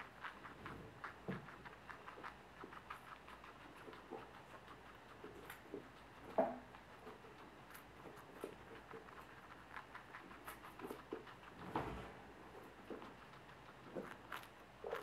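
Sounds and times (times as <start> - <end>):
guinea pig chewing: 0.0 - 15.0.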